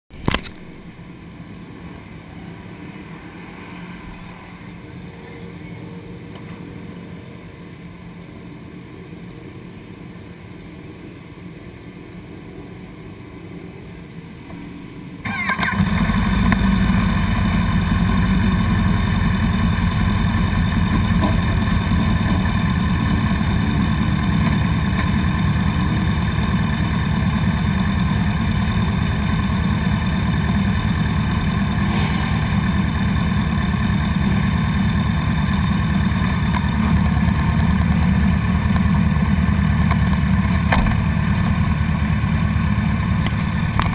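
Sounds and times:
motorcycle engines running: 13.9 - 43.9
motorcycle engine starting and idling: 14.6 - 43.9
brief knock: 40.7 - 41.0.

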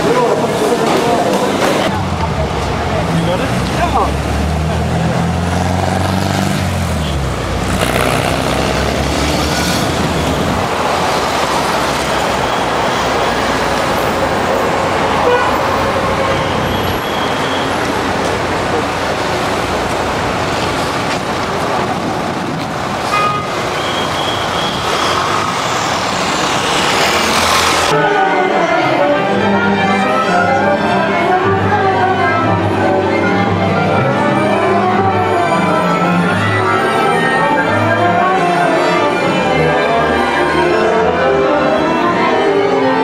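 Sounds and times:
street traffic: 0.0 - 43.0
car horn toots: 15.1 - 17.8, 23.1 - 25.2.

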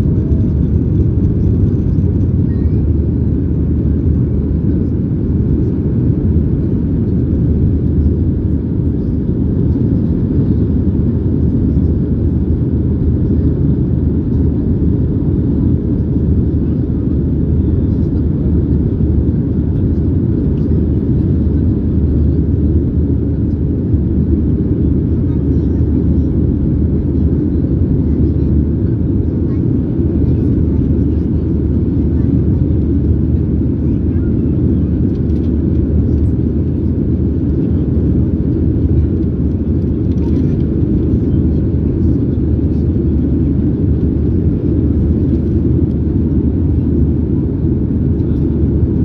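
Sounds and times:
airflow over fuselage: 0.0 - 49.0
jet engines: 0.0 - 49.0.

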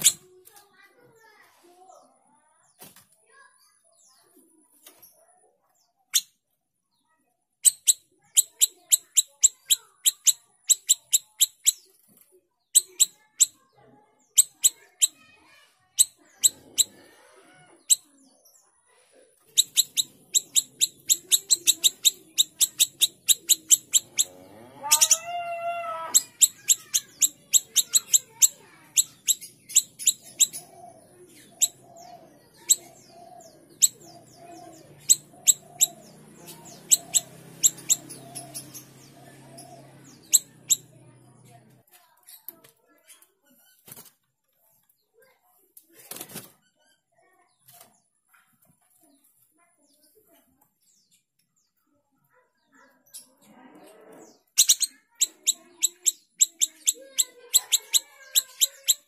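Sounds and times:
songbird high chirps: 5.8 - 15.3, 15.9 - 17.0, 19.5 - 41.7, 54.2 - 59.0
soft low repeated calls: 19.5 - 28.2
harsh wavering bird call: 19.6 - 30.6, 33.8 - 40.9.

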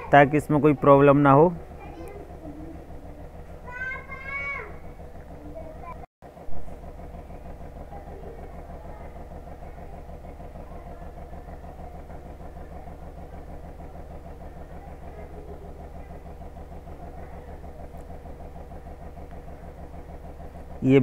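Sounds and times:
engine idling: 0.0 - 21.0.

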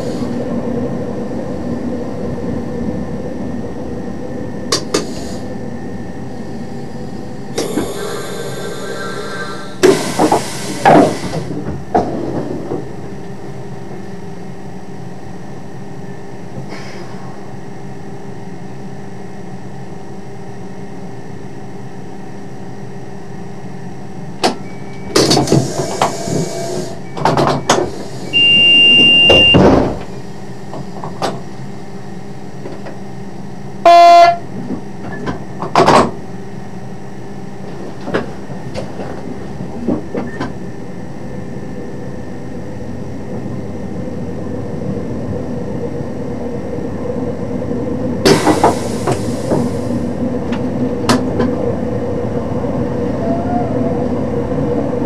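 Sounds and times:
high beep: 28.3 - 29.6, 33.9 - 34.4
train horn blast: 33.8 - 34.5.

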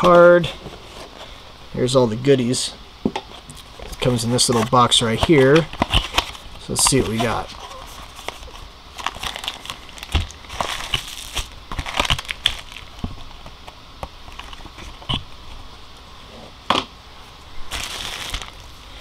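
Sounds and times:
plastic bags crinkling: 4.0 - 13.2, 17.7 - 18.8
cardboard box rustling: 4.3 - 12.8
packaging clicks: 9.0 - 12.9.

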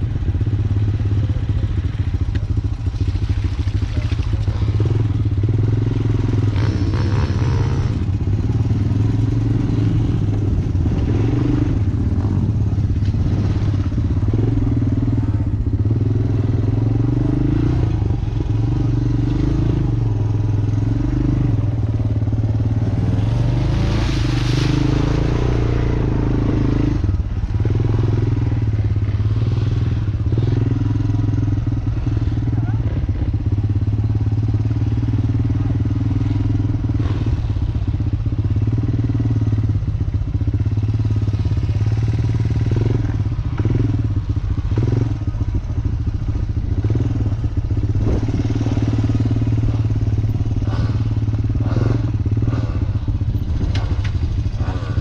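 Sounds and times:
off-road vehicle engine revving: 0.0 - 55.0
vehicle clatter: 47.7 - 55.0.

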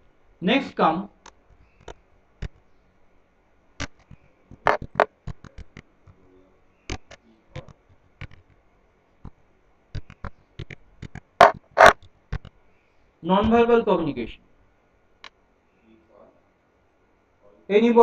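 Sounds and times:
computer keyboard typing: 3.8 - 6.2, 6.9 - 8.6, 9.2 - 12.6.

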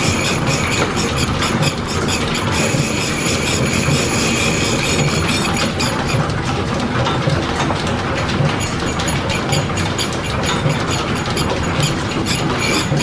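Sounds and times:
high whine of slitting saw: 0.0 - 6.2, 9.3 - 13.0
milling machine clatter and rumble: 0.0 - 13.0.

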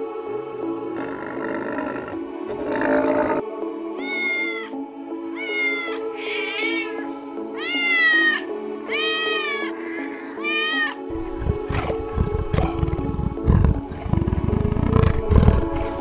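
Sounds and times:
background music: 0.0 - 16.0
cat meowing: 4.0 - 4.8, 5.4 - 9.8, 10.4 - 11.1.

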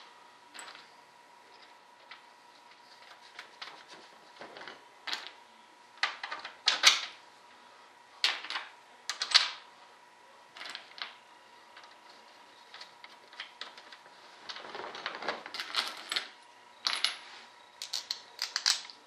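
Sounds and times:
faint steady hum: 0.0 - 19.0
metal washers and nuts clinking: 0.5 - 3.2, 14.9 - 19.0.

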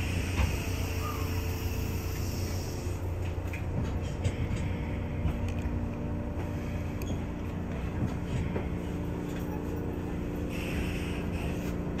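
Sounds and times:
train rumbling slowly: 0.0 - 12.0
faint rail clicks: 3.2 - 10.0.

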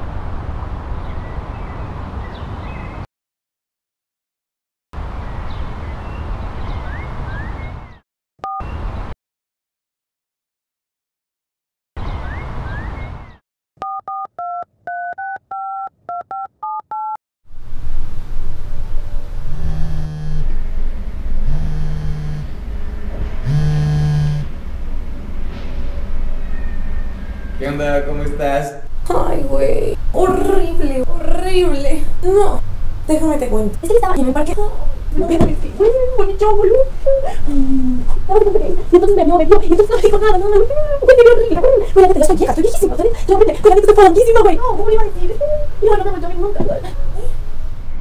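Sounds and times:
birds chirping: 1.0 - 3.1, 5.3 - 8.0, 12.0 - 13.4, 33.1 - 43.0
two-tone beep: 8.4 - 8.7, 13.8 - 17.2
mobile phone buzzing: 19.5 - 20.5, 21.4 - 22.5, 23.4 - 24.5.

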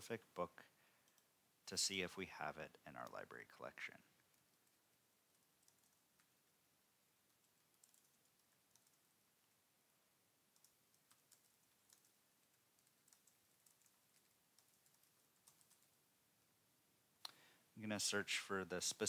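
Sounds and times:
computer keyboard typing: 1.0 - 1.3, 4.2 - 6.5, 7.2 - 9.2, 10.5 - 16.0.

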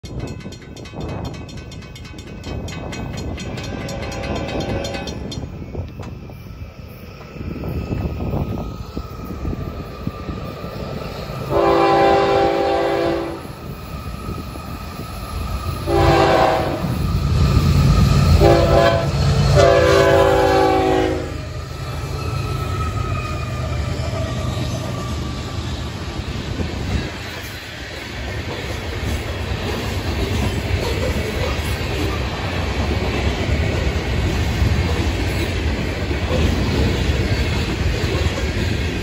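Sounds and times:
diesel locomotive rumble: 0.0 - 39.0
train wheels: 0.0 - 39.0
locomotive air horn: 11.5 - 13.5, 15.9 - 16.9, 18.4 - 21.4.

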